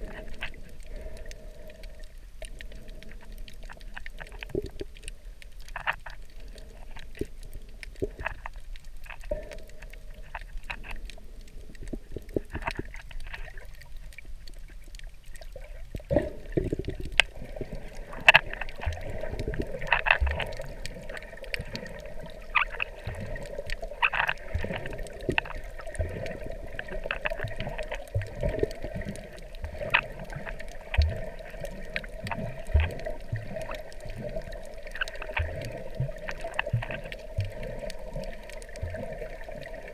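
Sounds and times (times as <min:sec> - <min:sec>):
low thumps and water gurgles: 0:00.0 - 0:39.9
underwater clicks and crackles: 0:00.0 - 0:39.9.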